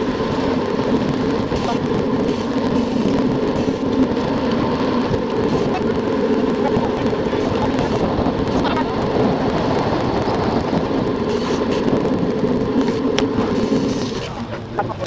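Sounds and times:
road rumble: 0:00.0 - 0:15.0
wind noise: 0:00.0 - 0:15.0.

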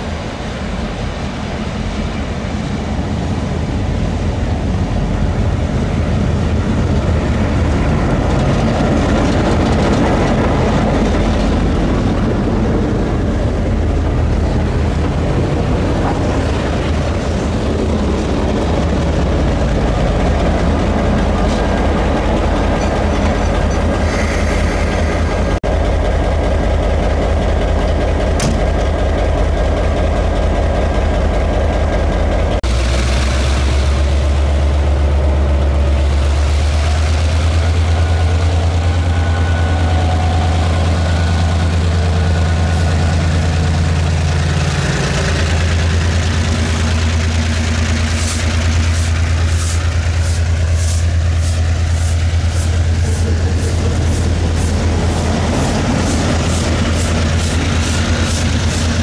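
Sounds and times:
diesel locomotive engine droning: 0:00.0 - 0:59.0.

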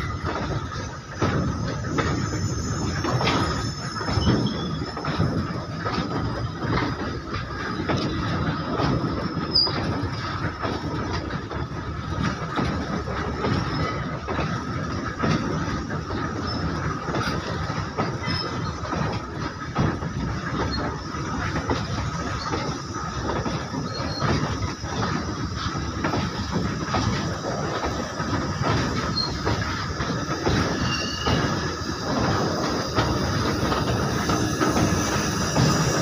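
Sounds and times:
clacks over rail joints: 0:00.0 - 0:36.0
train wheels rumbling on rail: 0:00.0 - 0:36.0
high-pitched wheel squeal: 0:02.0 - 0:05.2, 0:30.5 - 0:31.8.

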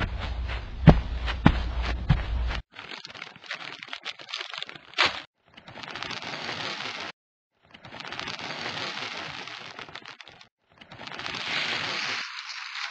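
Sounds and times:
footsteps: 0:00.0 - 0:02.6.

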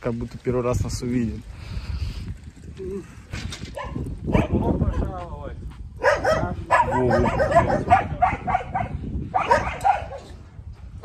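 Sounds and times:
dogs barking: 0:03.8 - 0:05.1, 0:06.0 - 0:10.4.

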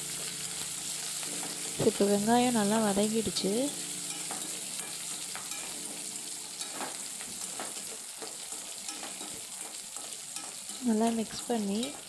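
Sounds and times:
food sizzling in hot oil: 0:00.0 - 0:12.0
spoon scraping a pan: 0:03.7 - 0:12.0.

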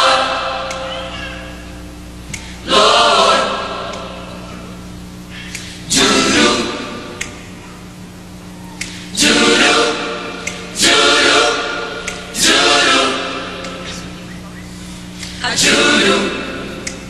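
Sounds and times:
choir singing loud chords: 0:00.0 - 0:01.8, 0:02.4 - 0:04.7, 0:05.7 - 0:07.6, 0:08.8 - 0:13.9, 0:15.4 - 0:17.0
steady low hum: 0:00.0 - 0:17.0.

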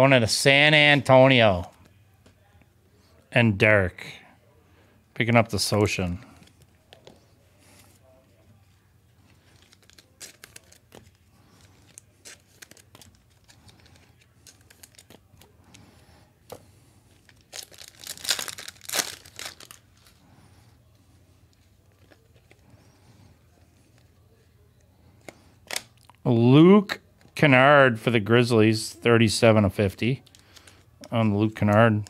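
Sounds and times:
cards clicking and rustling: 0:09.3 - 0:15.8, 0:16.4 - 0:20.2, 0:30.2 - 0:32.0
wrapper tearing and crinkling: 0:09.5 - 0:15.4, 0:17.2 - 0:20.2.

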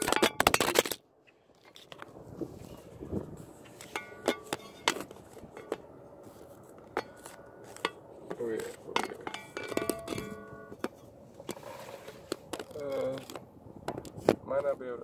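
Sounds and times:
metal hand tools clinking: 0:03.8 - 0:05.8, 0:08.9 - 0:10.8.

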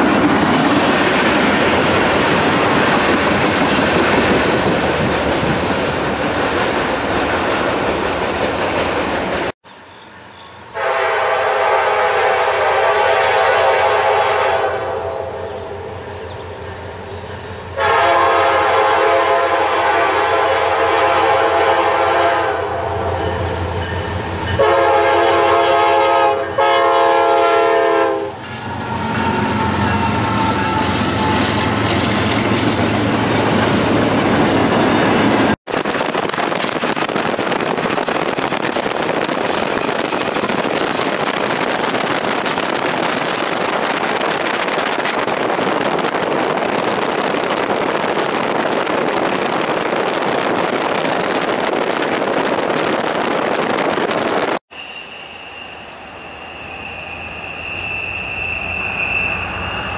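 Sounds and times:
locomotive air horn blasts: 0:10.8 - 0:15.4, 0:17.8 - 0:23.0, 0:24.6 - 0:31.4.

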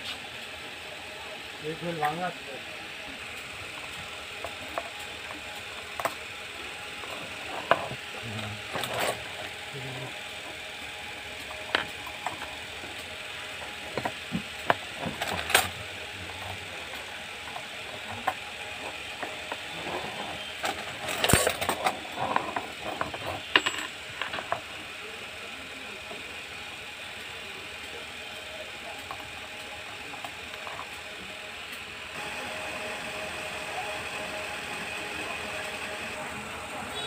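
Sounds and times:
metal parts clinking on wooden table: 0:20.7 - 0:24.7.

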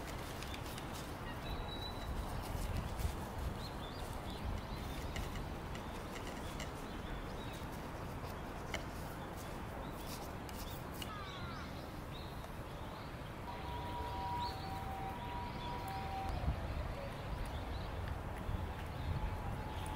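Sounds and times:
dried leaves crackling and rustling: 0:00.0 - 0:11.6
faint bird chirps: 0:09.9 - 0:17.9
two-note whistle: 0:13.5 - 0:16.6.

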